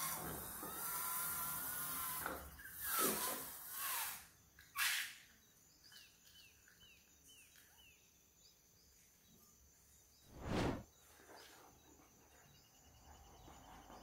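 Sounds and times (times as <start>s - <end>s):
swishes: 10.3s - 10.8s.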